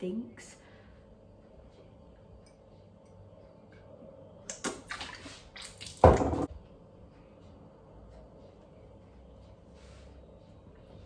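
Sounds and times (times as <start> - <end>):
liquid wet splash: 4.5 - 6.2.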